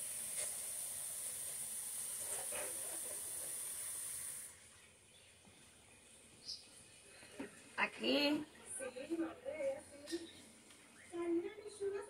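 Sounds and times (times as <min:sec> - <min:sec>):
pot boiling hiss: 0:00.0 - 0:04.7.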